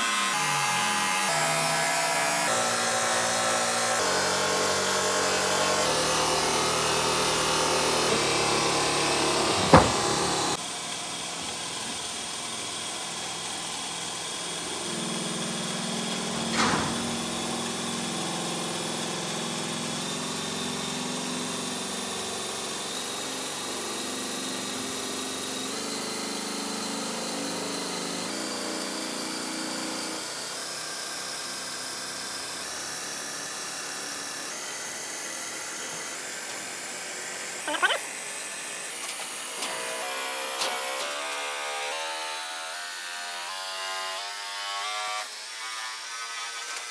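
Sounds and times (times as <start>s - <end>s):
buffing wheel motor humming: 0.0s - 30.6s
soft knock: 9.6s - 10.0s.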